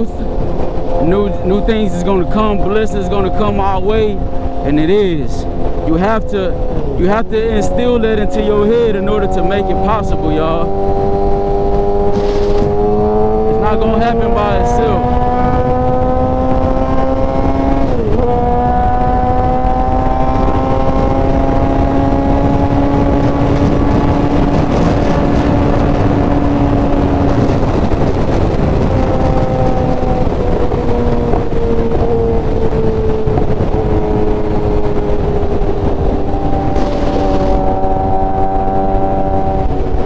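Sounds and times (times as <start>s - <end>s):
motorcycle engine at speed: 0.0s - 40.0s
wind rush on microphone: 0.0s - 40.0s.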